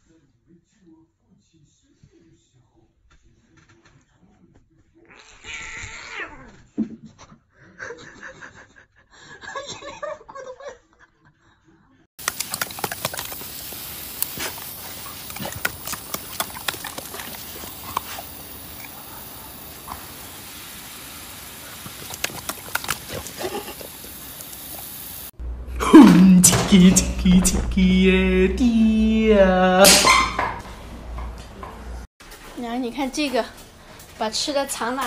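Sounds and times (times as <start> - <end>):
hose nozzle spraying water: 12.2 - 25.4
water splashes: 12.2 - 25.4
sharp clicks: 19.6 - 23.4.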